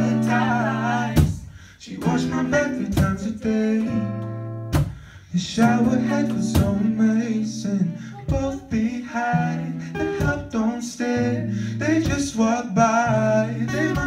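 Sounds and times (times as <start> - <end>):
woman singing: 0.0 - 3.7
acoustic guitar strumming: 0.0 - 14.0.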